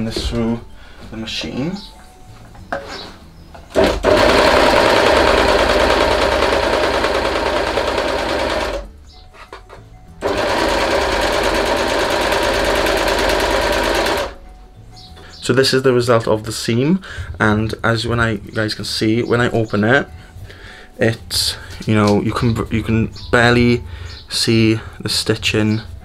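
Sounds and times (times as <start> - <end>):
overlocker stitching: 3.7 - 8.9, 10.2 - 14.4.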